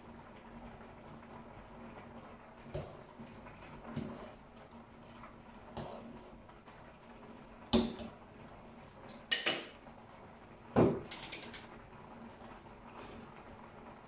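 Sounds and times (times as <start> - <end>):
dishes and utensils clattering: 9.3 - 9.8.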